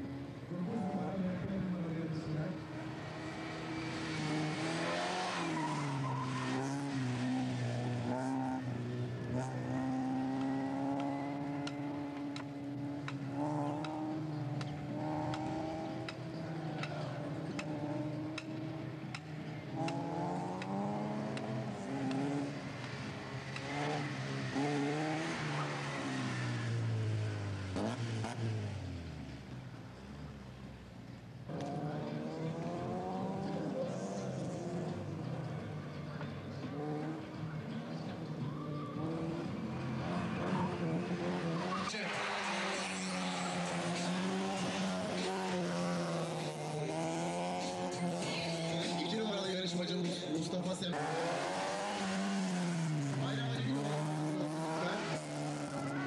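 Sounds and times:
race car engine revving: 0.0 - 56.0
tyres squealing: 5.0 - 7.1.

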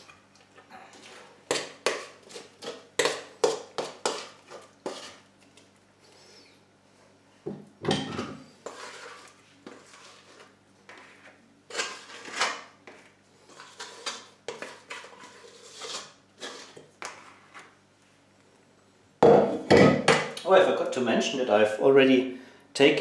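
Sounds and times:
metal bowl scraping plastic bowl: 3.8 - 5.2, 8.5 - 17.7.

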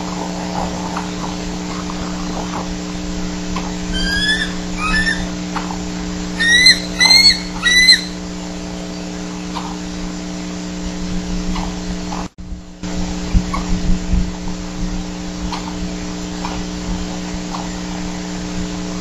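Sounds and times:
eagle calling: 0.0 - 9.8
electrical hum: 0.0 - 19.0.

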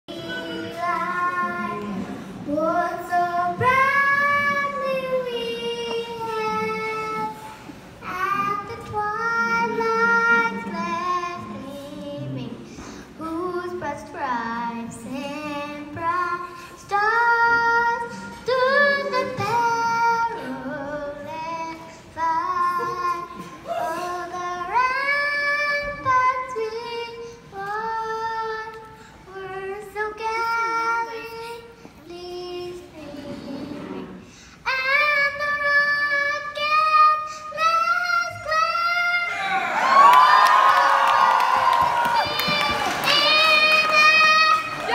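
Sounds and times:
boy singing into a microphone: 0.1 - 39.6, 41.8 - 44.9.

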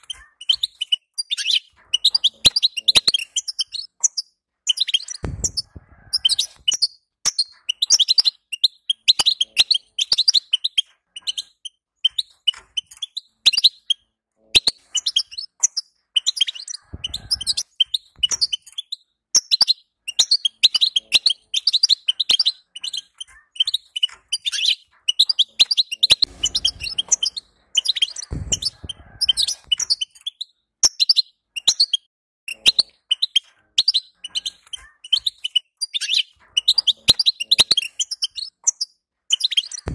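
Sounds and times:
bird twittering: 0.0 - 39.9
soft low thuds: 5.2 - 6.0, 28.3 - 29.8.

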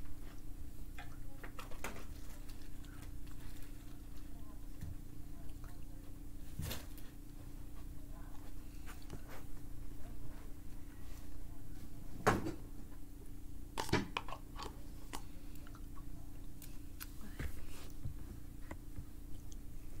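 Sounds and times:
faint steady hum: 0.0 - 20.0
chewing sounds: 0.3 - 6.3, 13.8 - 17.2, 18.7 - 19.8.

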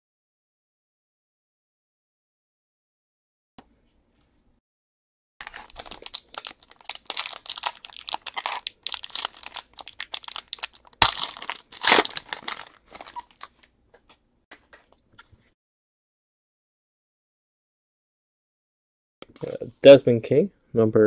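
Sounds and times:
foil wrapper tearing: 5.4 - 13.5
foil wrapper crinkling: 5.4 - 13.6
sharp crack: 10.9 - 12.5.

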